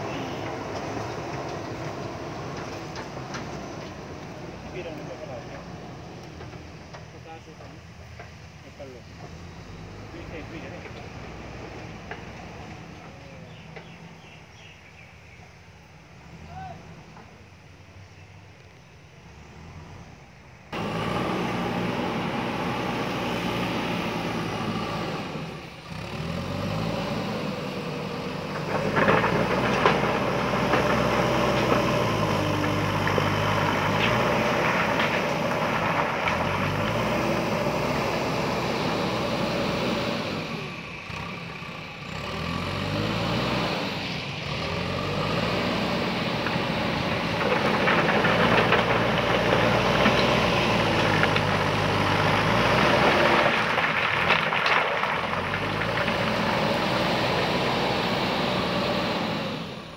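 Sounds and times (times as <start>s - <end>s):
diesel engine revving: 0.0s - 14.8s, 19.3s - 59.9s
stones scraping against bucket: 47.0s - 56.6s.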